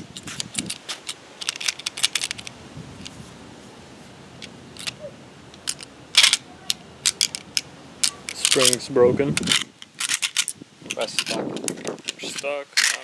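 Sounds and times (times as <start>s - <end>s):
small metallic clicks: 0.2s - 2.6s, 4.4s - 8.8s, 9.4s - 13.0s
cartridge clack: 5.6s - 8.8s.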